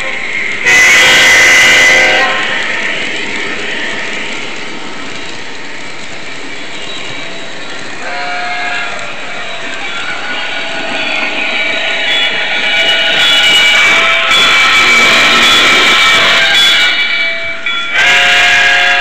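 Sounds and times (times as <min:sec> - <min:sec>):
model locomotive horn: 0:00.0 - 0:02.6, 0:08.0 - 0:11.3, 0:12.0 - 0:17.2, 0:17.9 - 0:19.0
model train rumbling on track: 0:00.0 - 0:19.0.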